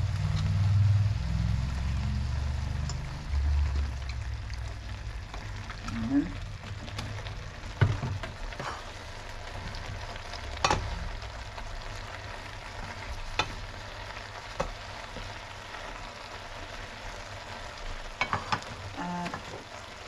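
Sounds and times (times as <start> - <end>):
food sizzling in frying pan: 0.0 - 20.0
wooden spoon knocking pan: 7.7 - 8.4, 18.2 - 19.5.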